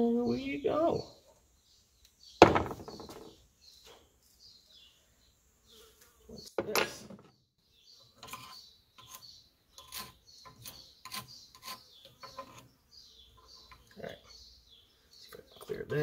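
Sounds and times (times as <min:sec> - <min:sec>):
screwdriver scraping metal: 0:08.2 - 0:12.7.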